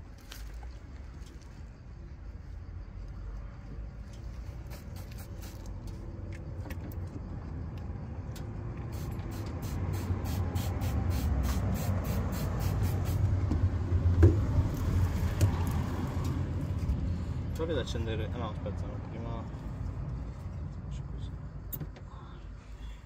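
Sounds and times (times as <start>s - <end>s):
passing car engine and tyres: 0.0s - 23.0s
spray bottle squirting: 4.6s - 5.9s, 8.8s - 13.3s.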